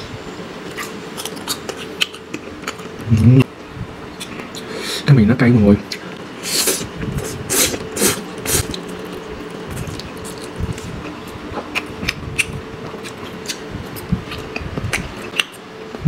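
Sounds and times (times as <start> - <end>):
person slurping noodles: 6.4 - 8.7
chewing with wet mouth clicks: 9.8 - 13.6, 14.3 - 15.6.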